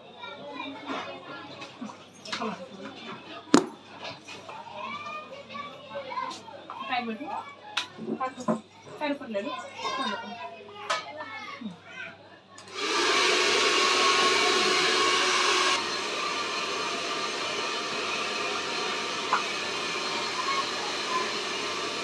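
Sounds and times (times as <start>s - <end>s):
hair dryer blowing: 12.7s - 22.0s.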